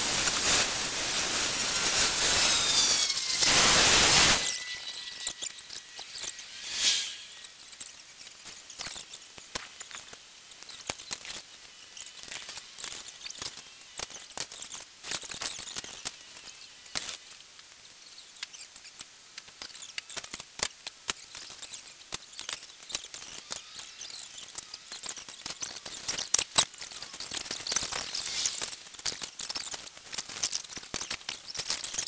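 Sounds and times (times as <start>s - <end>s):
light clicks and crackles: 7.5s - 32.0s.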